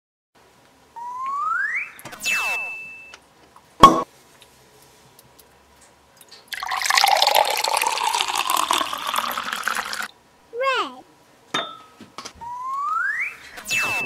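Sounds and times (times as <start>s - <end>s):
liquid pouring into a glass bowl: 6.5s - 10.1s.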